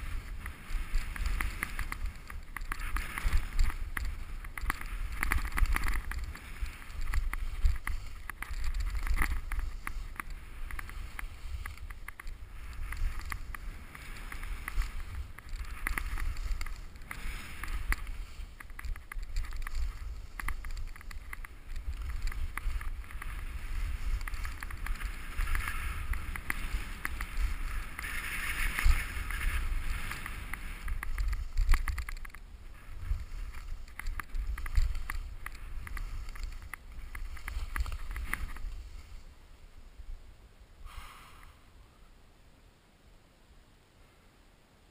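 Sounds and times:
skis scraping on snow: 0:00.0 - 0:39.6.

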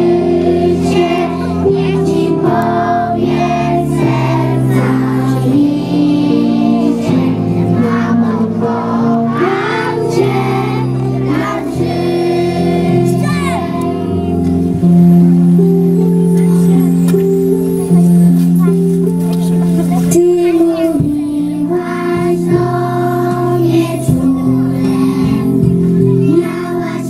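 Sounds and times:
children singing: 0:00.0 - 0:14.3, 0:19.9 - 0:27.0
musical backing track: 0:00.0 - 0:27.0.

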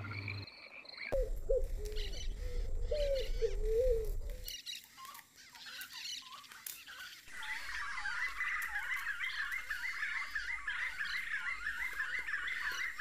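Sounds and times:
low rumble: 0:01.2 - 0:04.4
wavering low animal call: 0:01.2 - 0:04.5.

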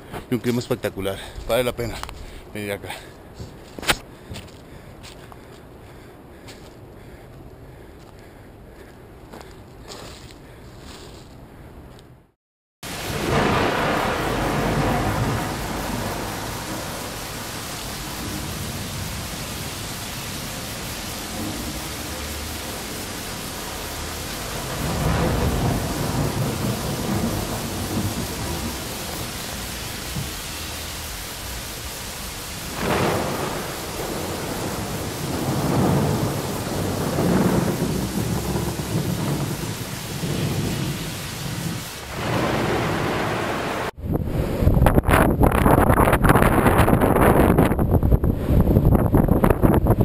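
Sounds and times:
wind buffeting microphone: 0:43.9 - 0:50.0.

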